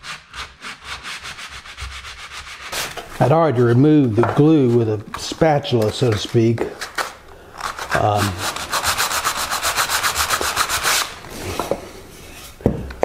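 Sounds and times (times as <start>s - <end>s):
wood being hand-sanded: 0.0s - 5.0s, 7.6s - 11.6s.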